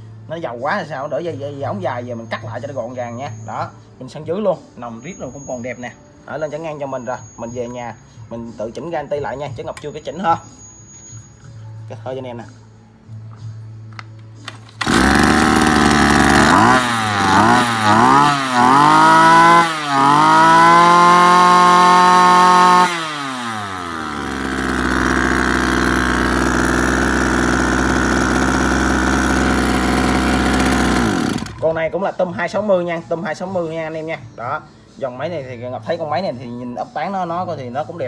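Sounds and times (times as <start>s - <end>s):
two-stroke engine revving and idling: 14.8s - 31.8s.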